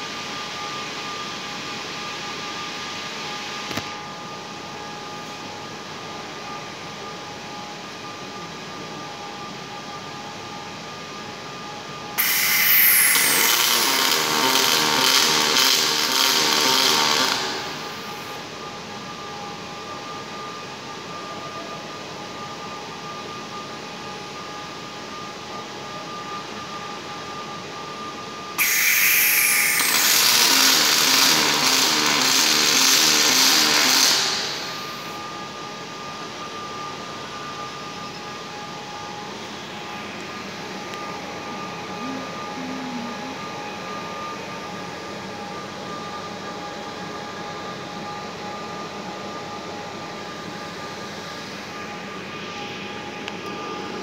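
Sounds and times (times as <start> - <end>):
machine hum: 7.8 - 20.4, 26.1 - 46.9
welding arc hiss: 12.2 - 18.4, 28.6 - 35.2.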